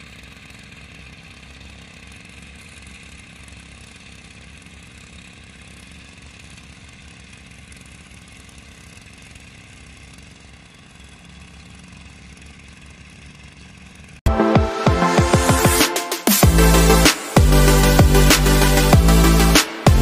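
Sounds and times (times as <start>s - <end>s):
distant small engine running: 0.0s - 14.2s, 15.1s - 20.0s.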